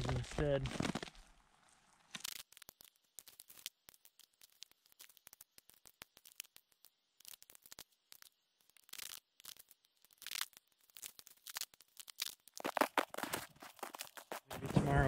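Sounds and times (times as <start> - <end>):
freezing rain pellets ticking: 2.1 - 14.6
rustling scrapes: 12.6 - 15.0.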